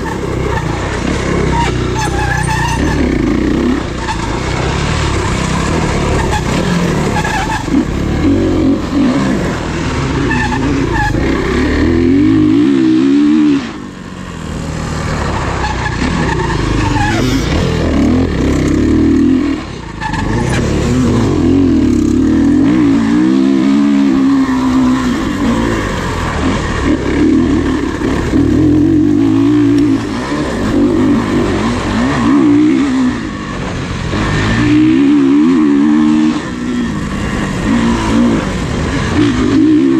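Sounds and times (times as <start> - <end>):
off-road engine revving: 0.0 - 39.9.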